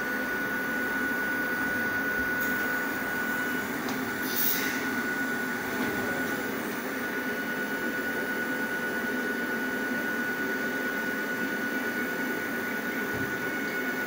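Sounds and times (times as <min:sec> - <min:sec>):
electric train whining: 0:00.0 - 0:07.9.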